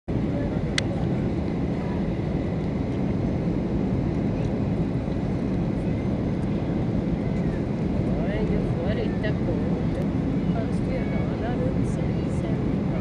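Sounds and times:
airplane cabin rumble: 0:00.1 - 0:13.0.

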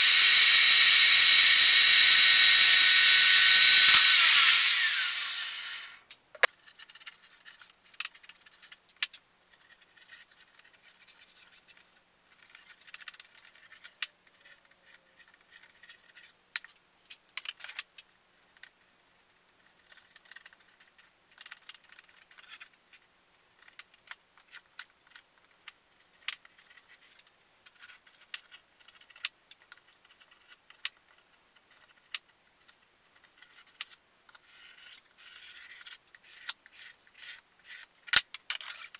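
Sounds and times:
table saw winding down: 0:00.0 - 0:06.0
wood strips scraping and clicking: 0:00.0 - 0:18.8, 0:19.6 - 0:23.0, 0:23.6 - 0:38.9.

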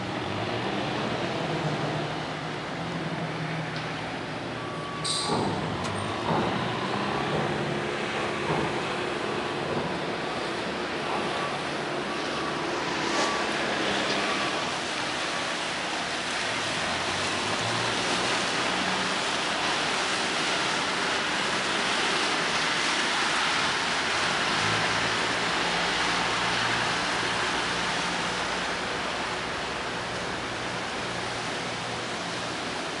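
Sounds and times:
boat engine hum: 0:00.0 - 0:33.0
rushing water: 0:00.0 - 0:33.0
wind: 0:00.0 - 0:33.0.

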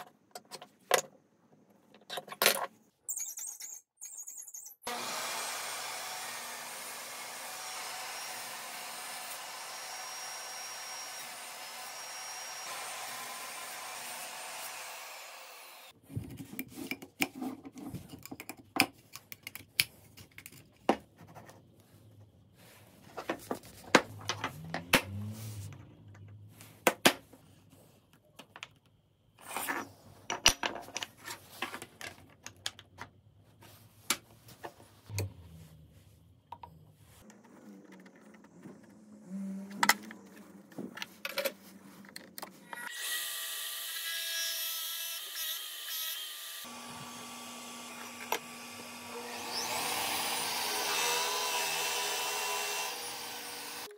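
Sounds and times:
power tool whining: 0:04.9 - 0:16.0, 0:45.1 - 0:53.9.

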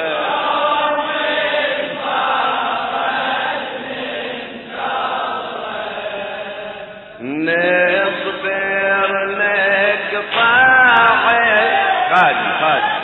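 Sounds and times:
men chanting in unison: 0:00.0 - 0:13.0.

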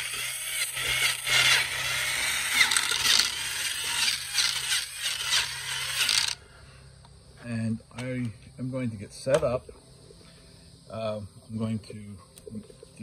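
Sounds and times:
wire wheel brush scratching paint: 0:00.0 - 0:06.4.

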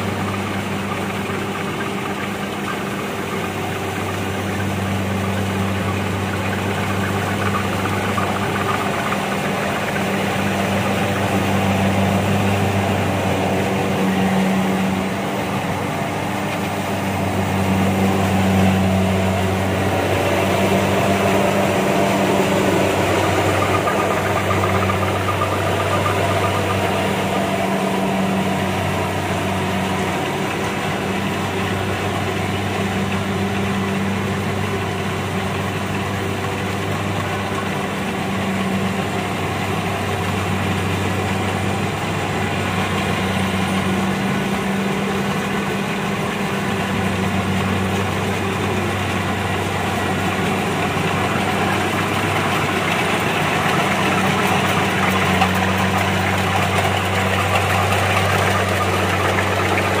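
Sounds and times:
diesel engine hum: 0:00.0 - 1:00.0
harvester machinery cutting and threshing: 0:00.0 - 1:00.0.

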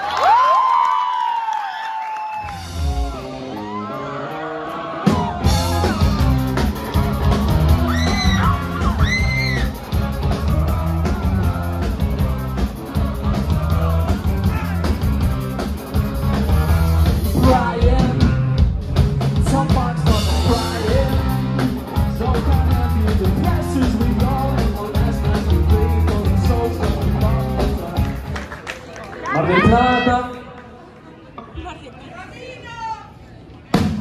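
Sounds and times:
drum kit: 0:02.5 - 0:03.8, 0:05.0 - 0:28.4, 0:33.7 - 0:34.0
person singing: 0:17.2 - 0:28.4.

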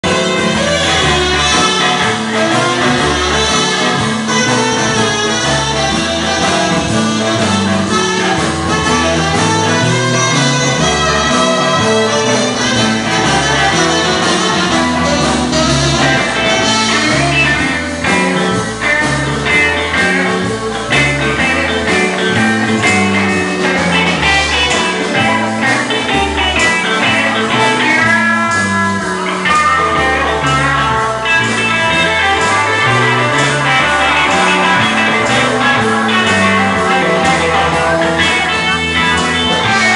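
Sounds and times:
bass line: 0:00.0 - 0:39.9
electric guitar: 0:00.0 - 0:39.9
live blues band: 0:00.0 - 0:39.9.

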